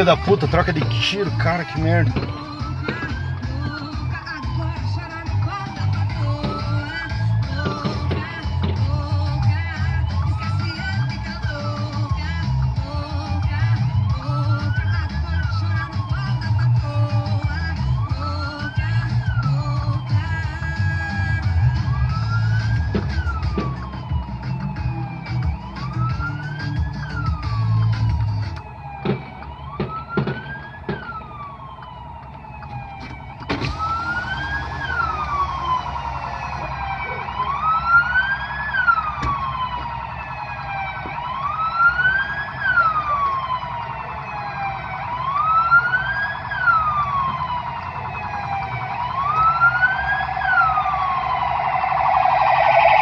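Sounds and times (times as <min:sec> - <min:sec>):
police siren wailing: 0:00.0 - 0:53.0
sharp bangs: 0:29.0 - 0:31.2.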